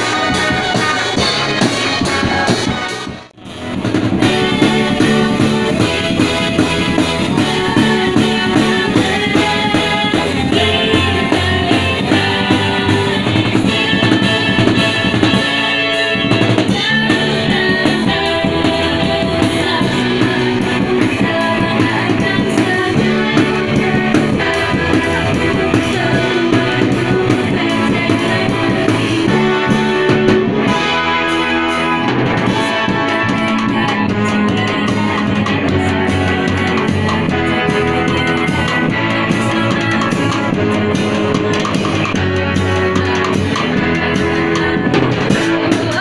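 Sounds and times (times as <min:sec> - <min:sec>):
drum kit: 0:00.0 - 0:46.0
electric bass guitar: 0:00.0 - 0:46.0
keyboard: 0:00.0 - 0:46.0
girls singing lead: 0:04.2 - 0:46.0.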